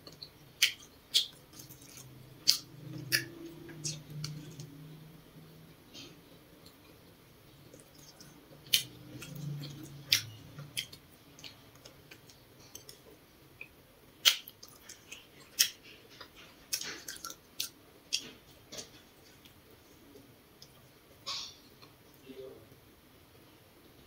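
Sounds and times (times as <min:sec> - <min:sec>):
chewing: 0:00.0 - 0:04.8, 0:06.0 - 0:22.0.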